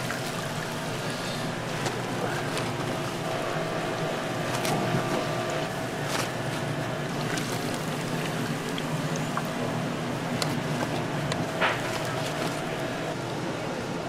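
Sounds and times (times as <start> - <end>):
oil sizzling and bubbling in fryer: 0.0 - 14.0.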